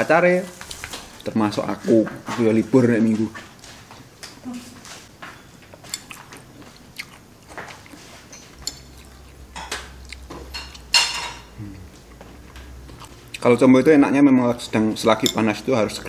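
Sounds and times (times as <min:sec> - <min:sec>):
chewing: 0:05.7 - 0:10.9, 0:11.7 - 0:13.6.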